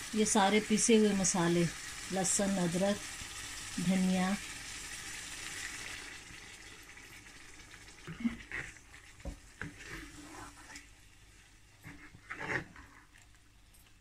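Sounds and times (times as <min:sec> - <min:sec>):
chicken sizzling in a pan: 0:00.0 - 0:12.6
wooden spatula scraping a pan: 0:08.2 - 0:13.3.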